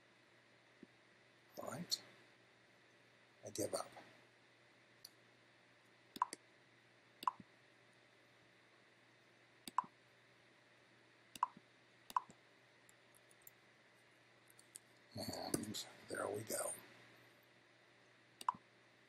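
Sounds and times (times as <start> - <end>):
computer mouse clicks: 6.2 - 6.4, 7.2 - 7.4, 9.6 - 9.9, 11.3 - 13.6, 18.4 - 18.6
soft ticks: 7.2 - 7.4, 9.7 - 9.9, 11.4 - 13.6, 18.4 - 18.6.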